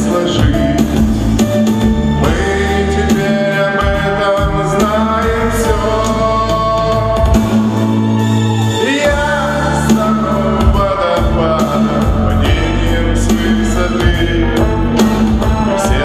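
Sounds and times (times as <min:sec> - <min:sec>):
man singing pop ballad: 0:00.0 - 0:07.9, 0:08.5 - 0:16.0
musical accompaniment: 0:00.0 - 0:16.0.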